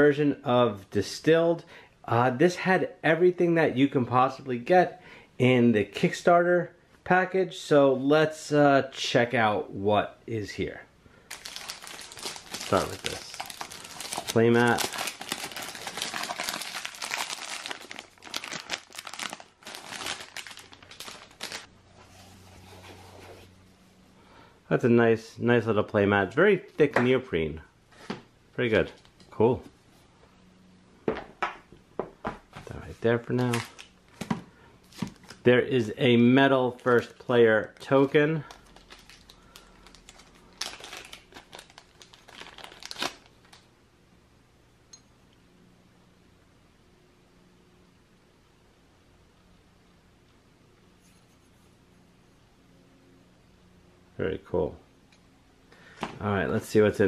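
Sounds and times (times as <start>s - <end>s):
plastic wrapping crinkling: 11.3s - 21.7s, 33.4s - 35.5s, 36.7s - 43.7s.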